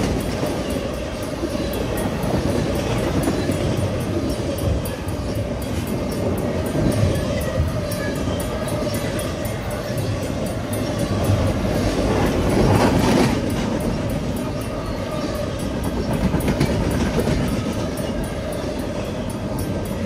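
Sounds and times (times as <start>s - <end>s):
clickety-clack over rail joints: 0.0s - 20.0s
train wheels rumbling on rail: 0.0s - 20.0s.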